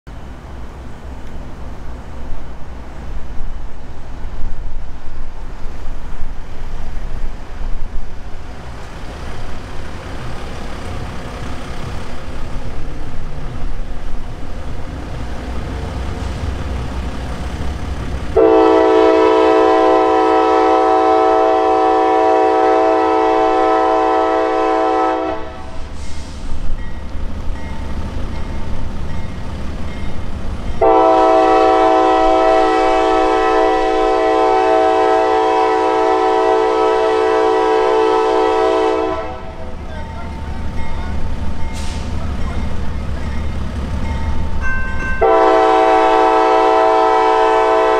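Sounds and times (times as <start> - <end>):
locomotive air horn blasts: 18.4 - 25.8, 30.8 - 39.7, 45.2 - 47.9.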